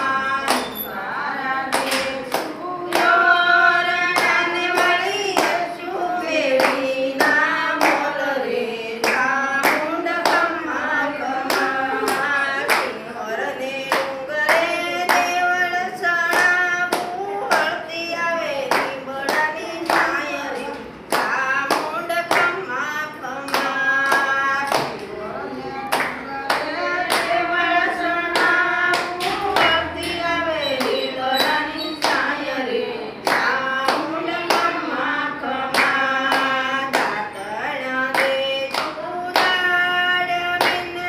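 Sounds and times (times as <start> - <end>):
women singing together: 0.0 - 41.0
hands clapping to a beat: 0.1 - 0.8, 1.5 - 5.6, 9.0 - 13.0, 16.2 - 17.8, 18.7 - 22.6, 23.4 - 25.1, 25.8 - 27.4, 28.2 - 32.4, 33.2 - 41.0.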